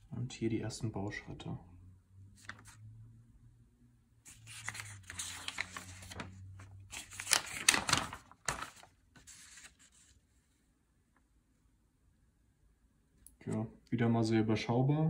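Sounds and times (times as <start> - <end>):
paper rustling and crinkling: 2.4 - 2.8, 4.3 - 10.4.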